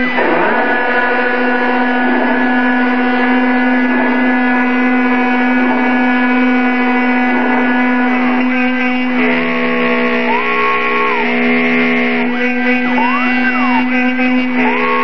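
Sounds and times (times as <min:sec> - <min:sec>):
end mill cutting plastic: 0:00.0 - 0:15.0
spindle motor whining: 0:00.0 - 0:15.0.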